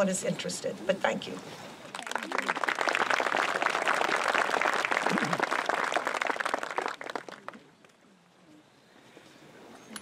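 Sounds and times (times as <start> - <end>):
small audience applauding: 1.9 - 7.7.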